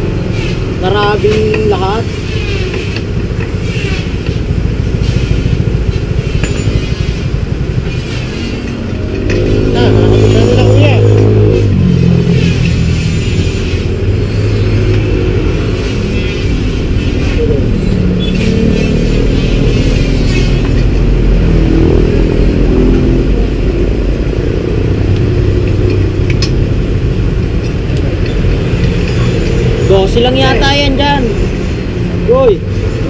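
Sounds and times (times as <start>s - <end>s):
low traffic rumble: 0.0s - 33.0s
motorcycle and car engines passing: 0.0s - 33.0s.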